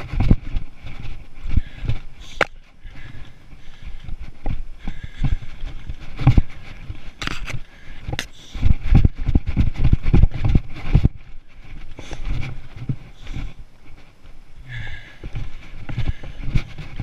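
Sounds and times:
footsteps scrambling over rock: 0.0s - 17.0s
camera being jostled: 7.1s - 11.1s.

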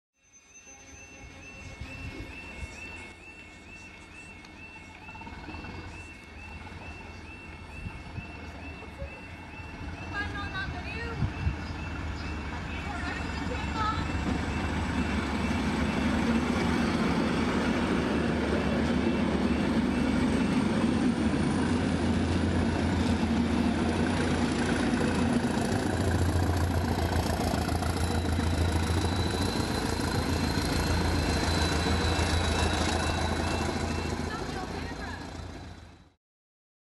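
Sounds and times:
diesel train engine drone: 0.3s - 36.2s.

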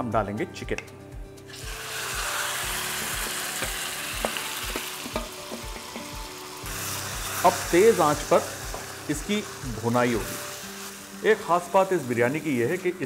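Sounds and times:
chicken sizzling in hot fat: 1.5s - 13.0s
spoon knocking against pot: 3.6s - 6.2s.

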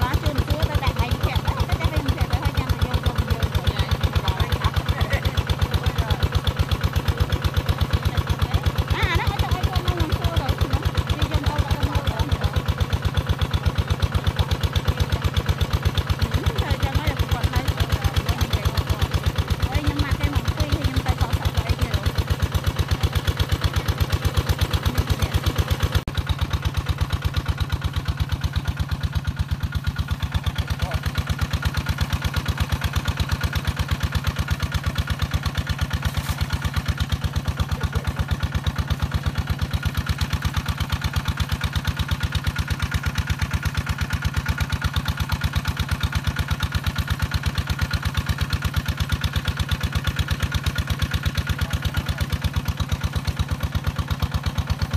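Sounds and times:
small engine running: 0.0s - 54.9s.

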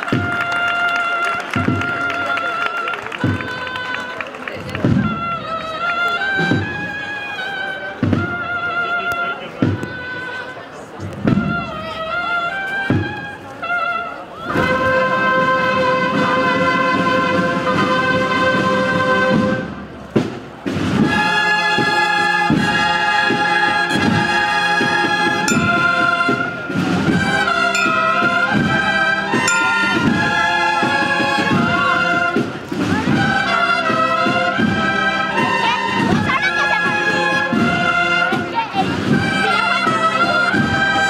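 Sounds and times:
brass band playing a march: 0.0s - 10.5s, 11.2s - 41.0s
drumbeats: 1.5s - 2.2s, 3.1s - 3.9s, 4.6s - 5.5s, 24.9s - 33.3s.

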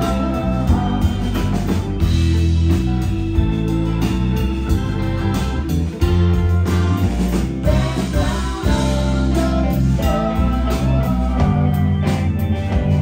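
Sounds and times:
bass guitar: 0.0s - 13.0s
drums: 0.0s - 13.0s
electric guitar: 0.0s - 13.0s.

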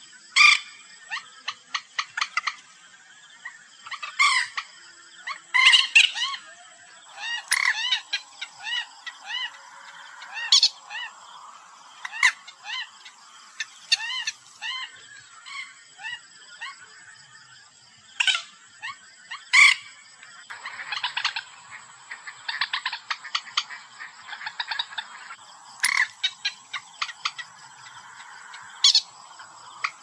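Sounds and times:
moorhen calls: 7.0s - 16.2s, 20.5s - 30.0s.

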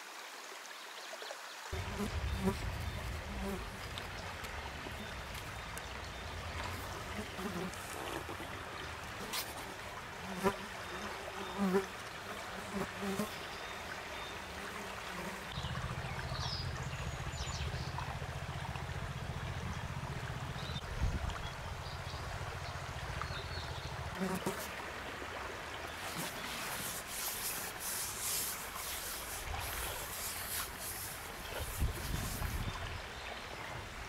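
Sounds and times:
stream trickling: 0.0s - 34.0s
insects buzzing: 1.7s - 13.4s, 24.1s - 24.8s, 25.9s - 32.7s.

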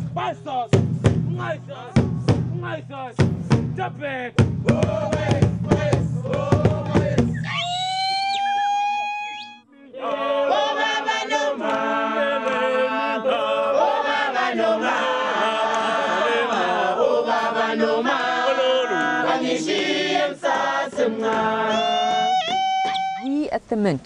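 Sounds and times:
mixed group singing in harmony: 4.6s - 7.4s, 9.7s - 22.6s.

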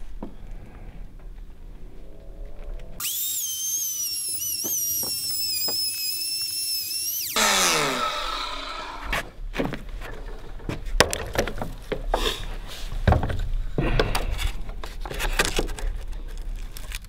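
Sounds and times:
electric hand planer whining: 3.0s - 9.2s.

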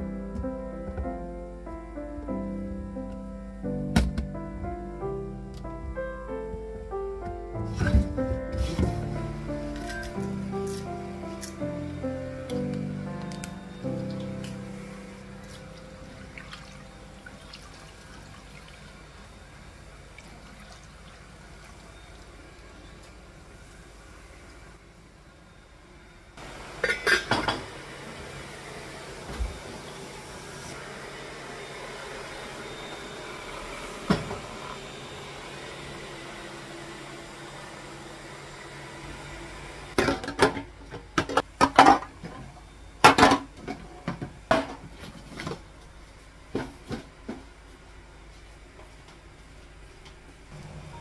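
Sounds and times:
robot vacuum humming: 27.6s - 40.0s, 50.5s - 51.0s.

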